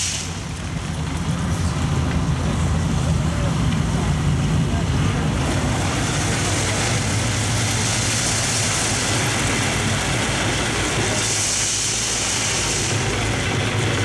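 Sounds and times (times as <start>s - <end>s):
diesel engines humming: 0.0s - 14.0s
high hiss: 7.7s - 13.2s.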